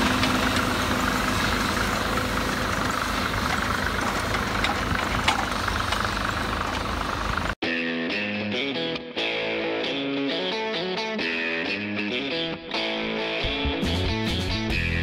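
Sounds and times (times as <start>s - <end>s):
tractor diesel engine running: 0.0s - 7.6s.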